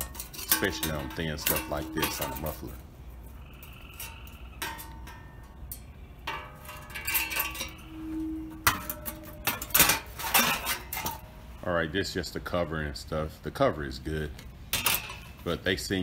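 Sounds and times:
sheet metal clinking and knocking: 0.0 - 2.8, 3.6 - 11.4, 14.7 - 15.4.

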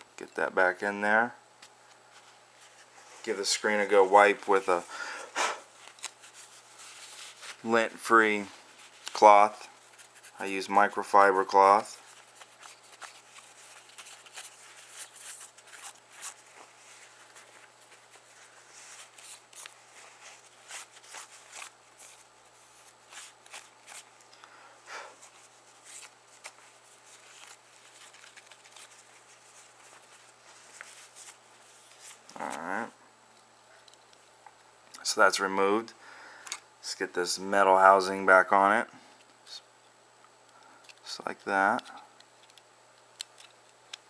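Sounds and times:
cloth rubbing phone screen: 5.7 - 7.8, 11.6 - 24.1.

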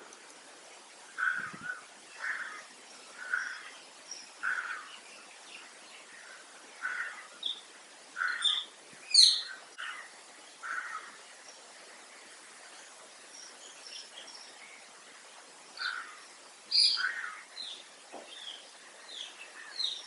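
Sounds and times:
higher bird chirps: 1.2 - 11.2, 15.8 - 20.0.

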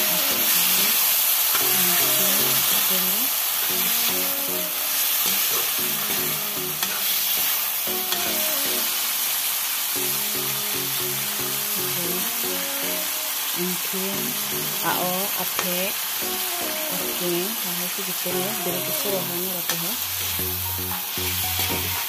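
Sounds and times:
background music: 0.0 - 1.0, 1.6 - 9.3, 10.0 - 22.0
food sizzling in a pan: 0.0 - 22.0.

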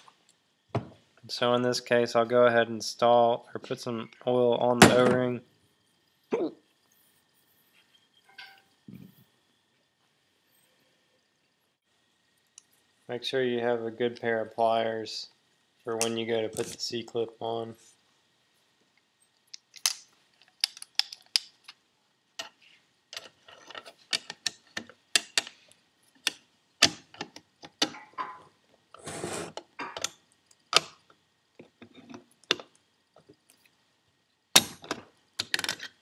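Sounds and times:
metal scrape: 29.0 - 29.6.

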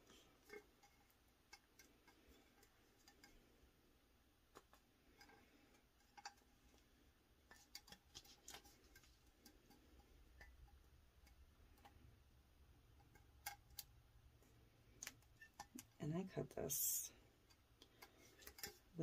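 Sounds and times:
faint clicks and taps: 0.1 - 3.5, 4.4 - 12.2.

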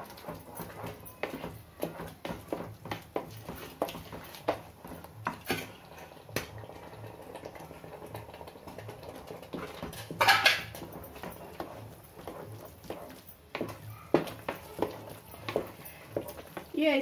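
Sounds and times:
metal spoon scraping a pot: 9.0 - 16.7.

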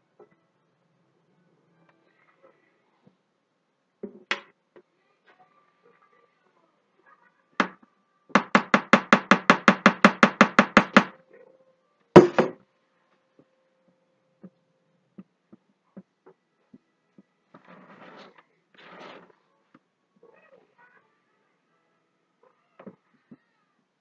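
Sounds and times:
utensils knocking on plastic mold: 8.4 - 11.1, 12.2 - 12.6.

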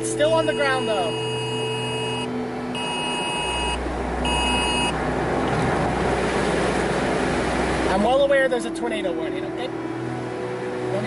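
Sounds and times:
emergency alert tone: 0.0 - 5.0
truck cab rumble: 0.0 - 9.5.

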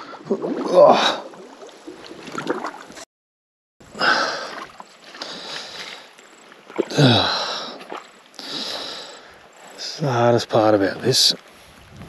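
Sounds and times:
water splashing and sloshing: 0.0 - 3.1, 3.8 - 10.0.

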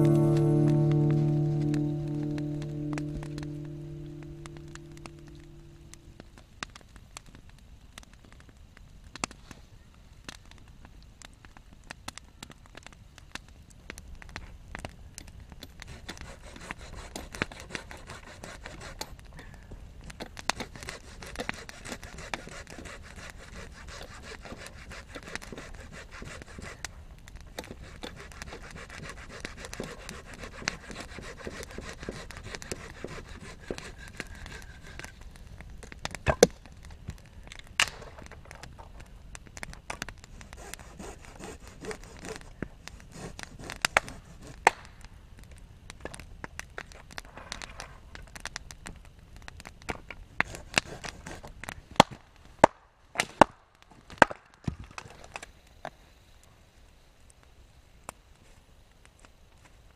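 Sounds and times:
sharp cracks: 0.0 - 6.9, 26.6 - 55.4
campfire crackling and popping: 0.0 - 59.9
hand saw cutting wood: 15.8 - 19.1, 20.5 - 26.8, 27.6 - 35.2, 40.4 - 44.7, 50.4 - 51.5.

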